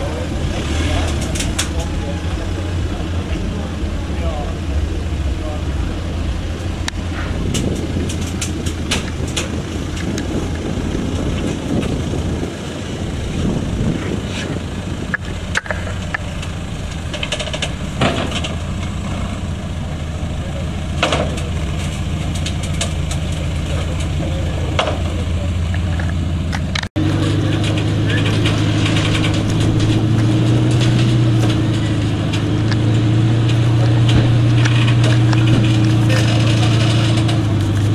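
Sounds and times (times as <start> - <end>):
diesel engine running at low revs: 0.0 - 37.9.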